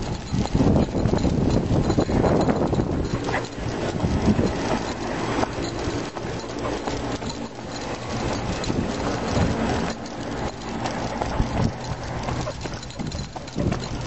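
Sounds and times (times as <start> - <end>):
jogging footfalls on pavement: 0.0 - 14.0
wind rumble on microphone: 0.0 - 14.0.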